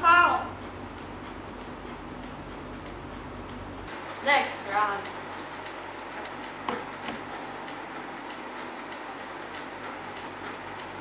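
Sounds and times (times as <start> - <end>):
faint regular ticking: 0.1 - 11.0.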